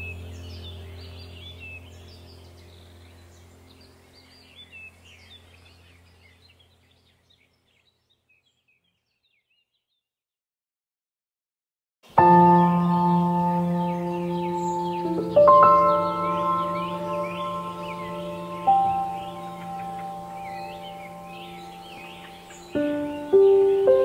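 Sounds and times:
low steady drone: 0.0s - 6.8s, 12.2s - 24.0s
birds chirping: 0.0s - 10.1s, 12.1s - 24.0s.

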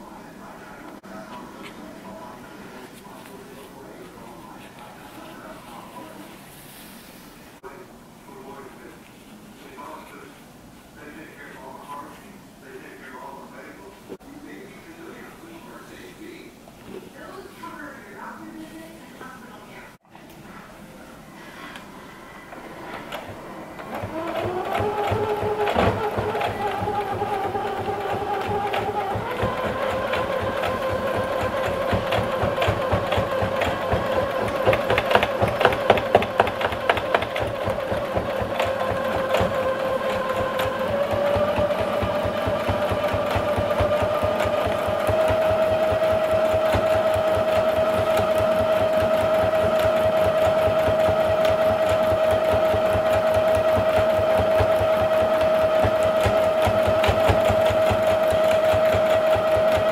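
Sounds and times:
sewing machine stitching: 22.3s - 59.9s.

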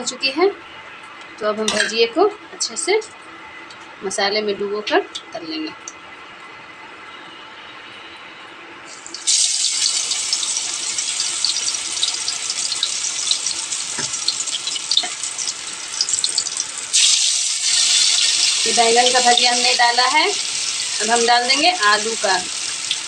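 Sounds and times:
vegetable slices sizzling in hot oil: 8.9s - 23.0s.

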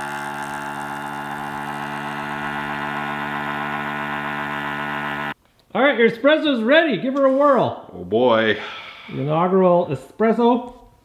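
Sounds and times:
espresso maker electric hum: 0.0s - 5.4s.

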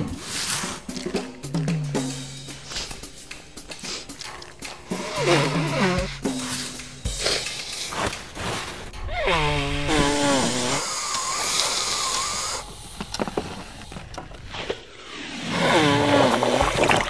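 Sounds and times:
cartoon nose blowing: 2.6s - 7.5s, 9.1s - 12.7s.

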